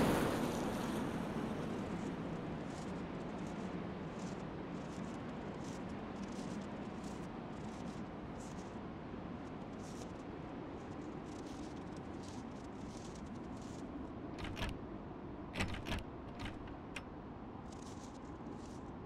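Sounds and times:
metal latch bar clacking: 0:15.6 - 0:17.0.

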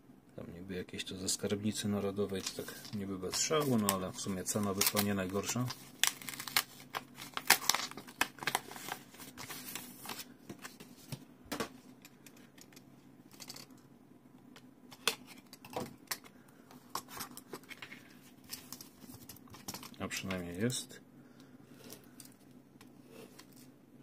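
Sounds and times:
paper envelope tearing open: 0:04.8 - 0:10.2.

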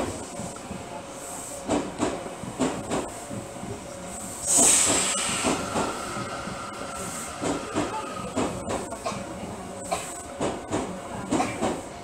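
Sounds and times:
loud hiss burst: 0:04.4 - 0:06.0
train wheels clunking over rail joints: 0:04.5 - 0:06.0.

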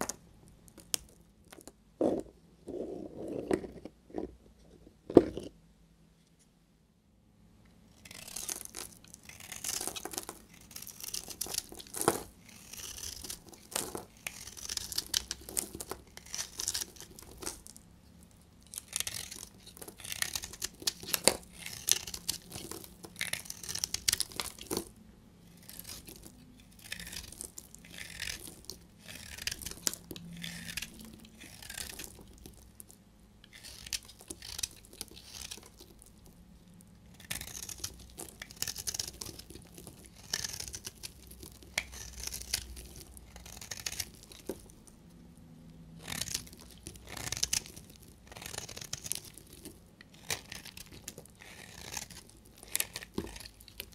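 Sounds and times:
crumbly crunching of soap flakes: 0:00.0 - 0:02.3, 0:08.0 - 0:53.9
knife blade scraping soap: 0:08.0 - 0:17.6, 0:18.7 - 0:24.9, 0:25.5 - 0:32.5, 0:33.4 - 0:35.8, 0:37.1 - 0:44.7, 0:46.0 - 0:53.9.

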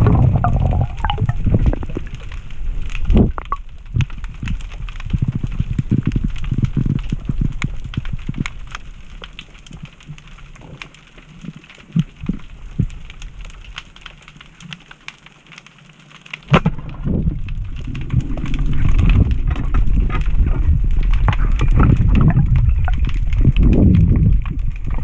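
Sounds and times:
low water noise: 0:00.0 - 0:25.0
underwater crackling clicks: 0:00.0 - 0:25.0
sharp crack: 0:16.3 - 0:19.9.

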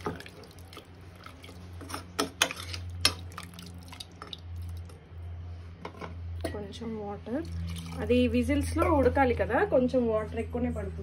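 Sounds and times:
wet stirring of thick gravy: 0:00.0 - 0:05.0.

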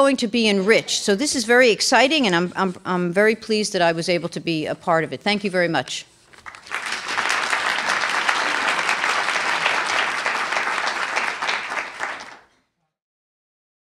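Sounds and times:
audience applauding: 0:06.4 - 0:12.5.

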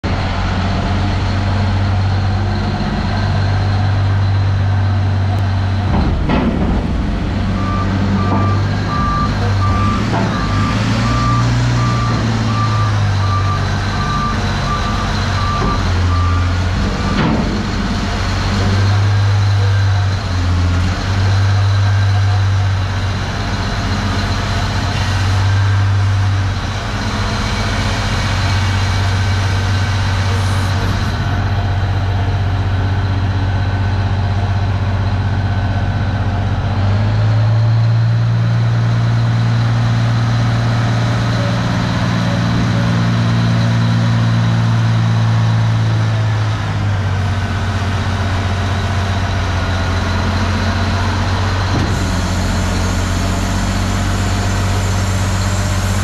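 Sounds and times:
truck diesel engine running: 0:00.0 - 0:56.0
reversing alarm beeping: 0:07.6 - 0:17.3.

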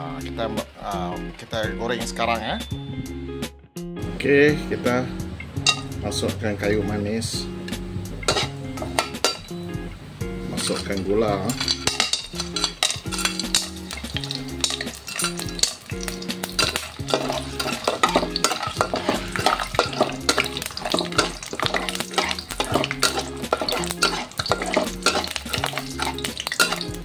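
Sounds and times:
spices sizzling in oil: 0:05.2 - 0:06.2, 0:07.4 - 0:27.0
ladle scraping wok: 0:05.6 - 0:06.0, 0:07.7 - 0:09.6, 0:10.4 - 0:27.0.

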